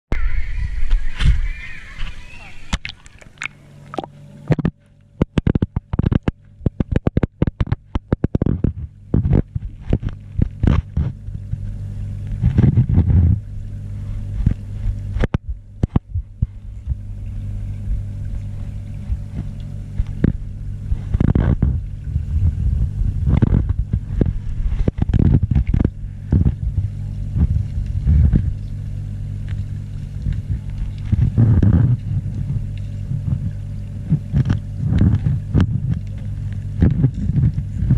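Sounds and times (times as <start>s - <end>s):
muffled underwater hum: 0.1s - 37.9s
heavy rumbling swells: 16.5s - 37.9s.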